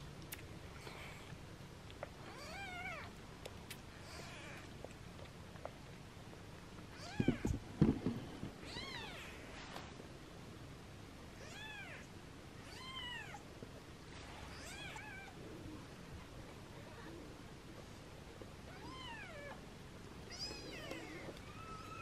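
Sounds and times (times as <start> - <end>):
kittens mewing: 20.3 - 22.0.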